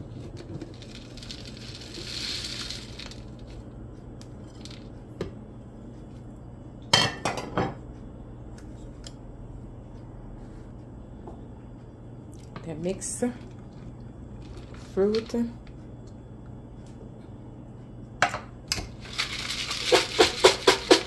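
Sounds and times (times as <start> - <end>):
dried fruit pouring into jar: 0.6 - 3.5, 19.0 - 21.0.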